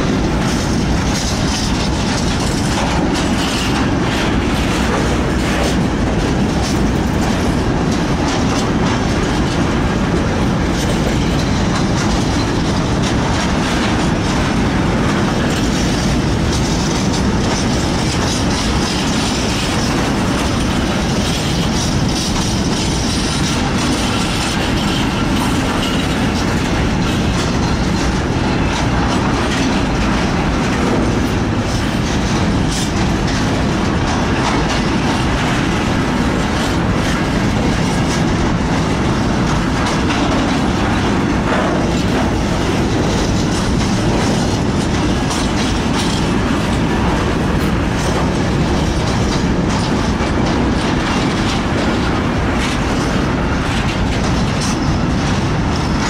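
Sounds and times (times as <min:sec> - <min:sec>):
steel wheels rumbling on rail: 0:00.0 - 0:56.0
wheels clicking over rail joints: 0:00.0 - 0:56.0.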